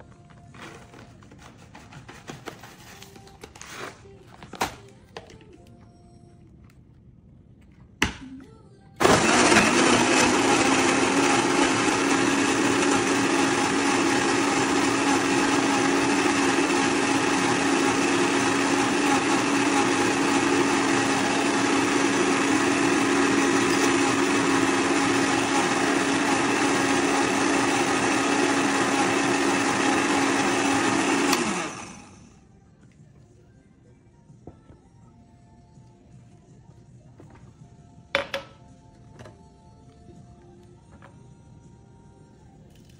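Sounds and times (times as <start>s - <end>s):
blender motor humming: 9.0s - 32.3s.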